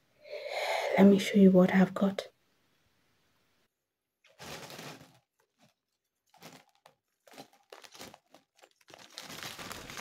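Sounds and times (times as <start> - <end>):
bag crinkling and rustling: 4.3 - 10.0.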